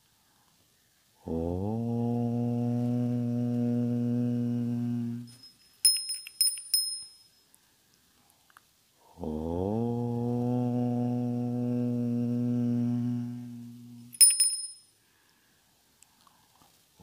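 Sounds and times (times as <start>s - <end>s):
person chanting om: 1.2s - 5.4s, 9.0s - 14.2s
small bell ringing: 5.3s - 7.4s, 14.1s - 15.0s.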